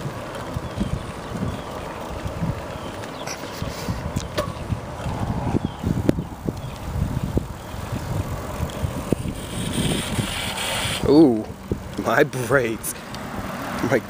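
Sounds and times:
bicycle rolling on asphalt: 0:00.0 - 0:14.0
wind rumble on microphone: 0:00.0 - 0:14.0
bike clicks and knocks: 0:04.1 - 0:05.2.

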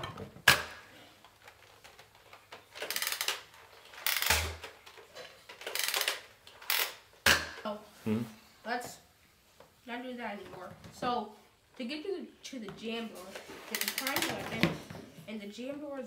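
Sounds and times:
plastic blaster clacks: 0:01.5 - 0:07.6.

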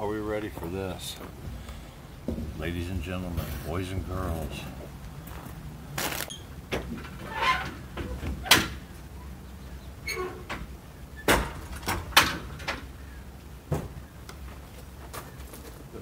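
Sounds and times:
metal latches and doors clanking: 0:06.1 - 0:08.9, 0:10.0 - 0:13.0.

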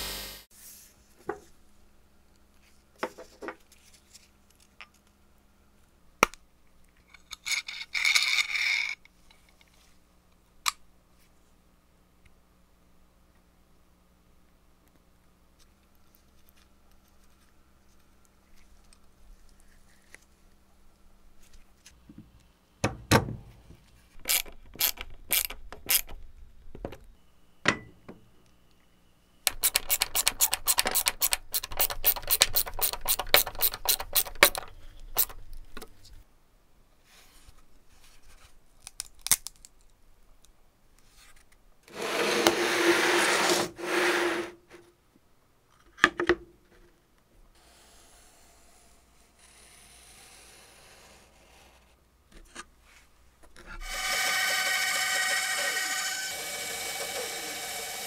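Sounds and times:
hand tool clicking on metal: 0:29.5 - 0:35.4.

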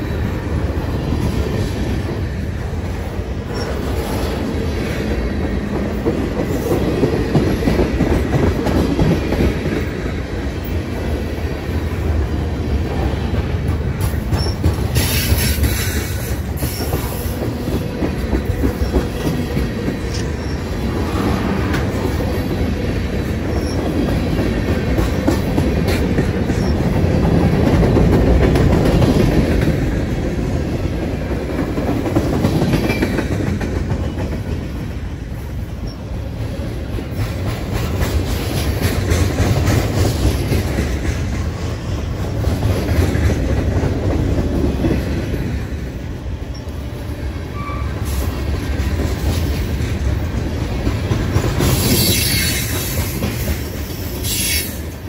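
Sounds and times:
freight train wheels rumbling: 0:00.0 - 0:55.0
wheel squeals: 0:14.3 - 0:15.5.

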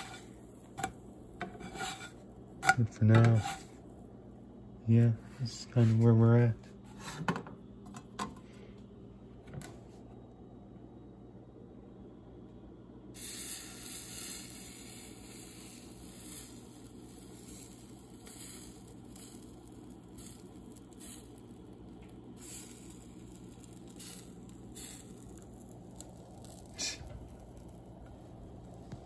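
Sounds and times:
batter sizzling in frying pan: 0:00.0 - 0:02.2, 0:13.2 - 0:29.0
low steady hum: 0:00.0 - 0:29.0
faint crackles: 0:13.2 - 0:29.0.

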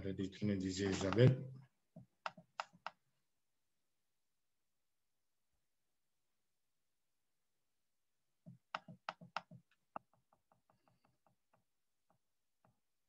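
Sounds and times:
computer mouse clicking: 0:02.2 - 0:03.0, 0:08.6 - 0:11.4.

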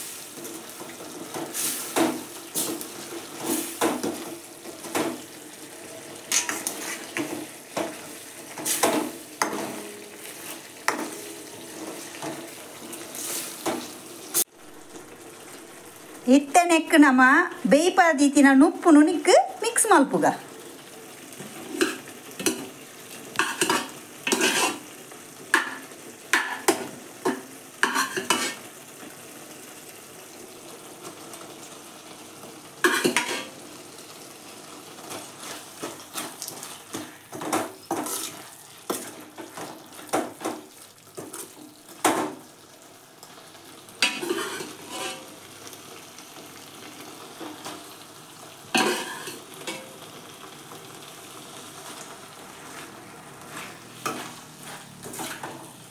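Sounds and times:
food frying sizzle: 0:00.0 - 0:55.9
spoon scraping metal pan: 0:06.3 - 0:13.9, 0:21.4 - 0:22.7, 0:23.4 - 0:24.9, 0:25.6 - 0:28.6, 0:32.8 - 0:33.6, 0:37.8 - 0:39.3, 0:44.0 - 0:45.3, 0:48.7 - 0:49.9, 0:52.7 - 0:55.8.

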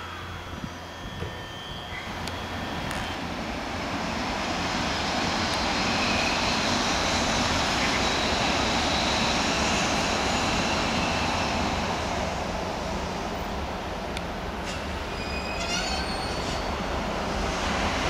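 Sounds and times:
electric train passing: 0:00.0 - 0:18.0.

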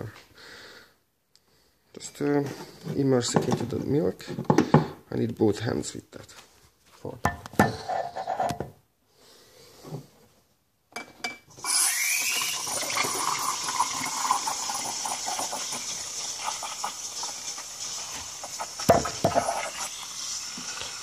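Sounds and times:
steam wand hissing: 0:11.6 - 0:21.0.

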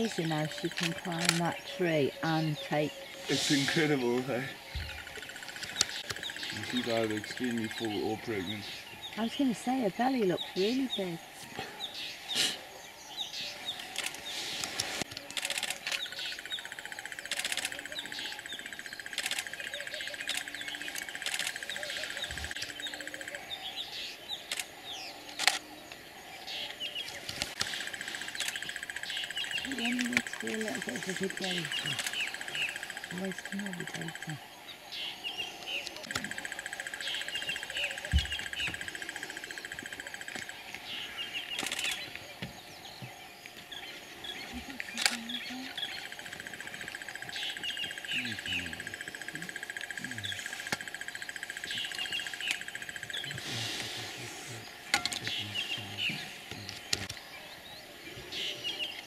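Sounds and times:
birds chirping: 0:00.0 - 0:59.0
pulsing bird trill: 0:27.8 - 0:42.2, 0:43.7 - 0:53.6.

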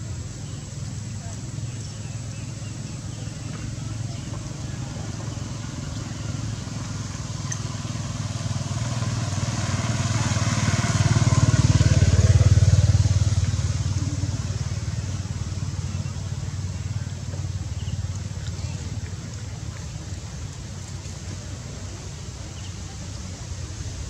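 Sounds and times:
motorbike engine passing: 0:02.5 - 0:20.4.

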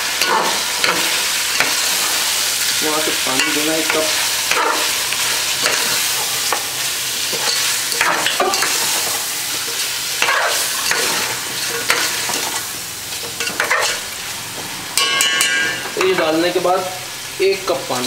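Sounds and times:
food sizzling in a pot: 0:00.0 - 0:18.0
metal spoon scraping a pot: 0:13.4 - 0:14.0.

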